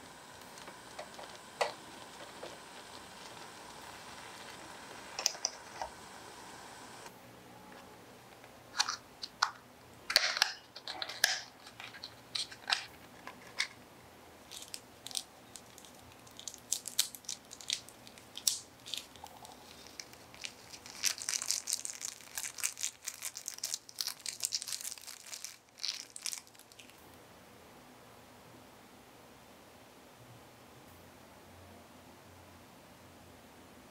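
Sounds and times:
paper packet crinkling and tearing: 0:00.0 - 0:06.0, 0:14.4 - 0:27.0.

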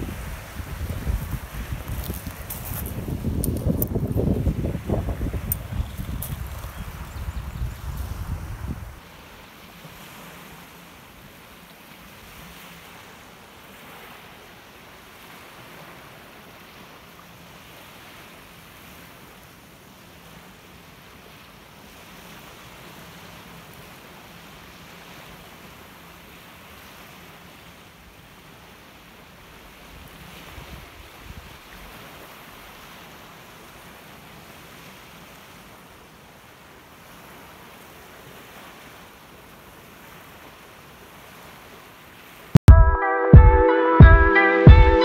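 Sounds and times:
wind buffeting microphone: 0:00.0 - 0:09.0
waves washing onto pebbles: 0:00.0 - 0:42.6.

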